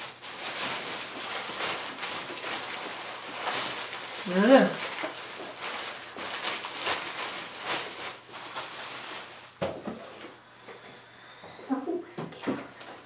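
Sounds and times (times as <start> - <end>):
plastic bags rustling: 0.0 - 10.4.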